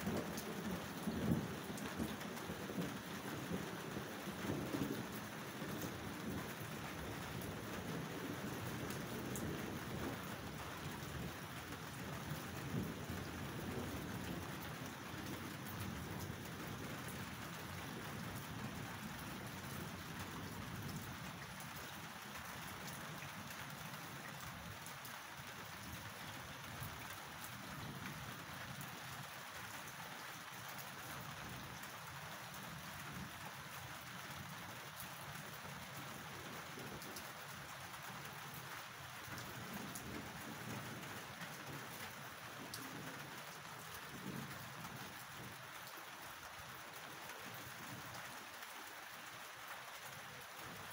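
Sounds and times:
thunder rumbling: 0.0 - 21.0
rain falling: 0.0 - 50.9.

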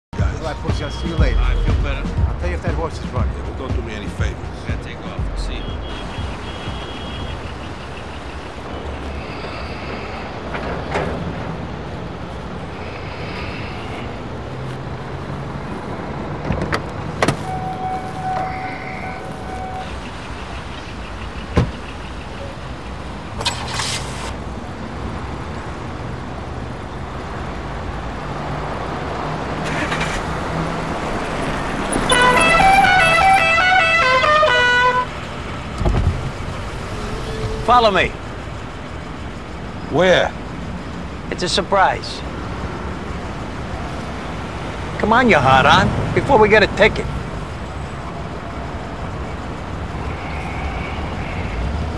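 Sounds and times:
street traffic: 0.0 - 51.9
short steady beep: 17.5 - 19.9.

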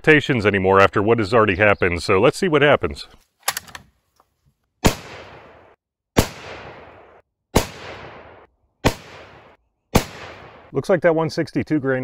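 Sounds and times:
rifle shots with echo: 4.8 - 10.7.

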